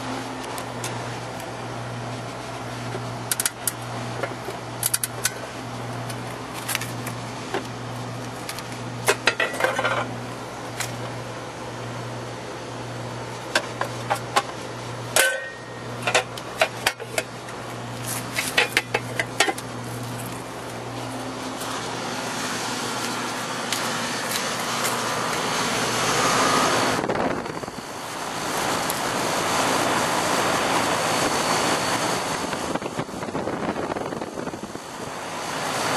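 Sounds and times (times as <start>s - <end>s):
air conditioner humming: 0.0s - 35.9s
metal cover clicking and clattering: 3.3s - 5.4s, 8.5s - 10.1s, 15.2s - 17.3s, 18.3s - 19.7s.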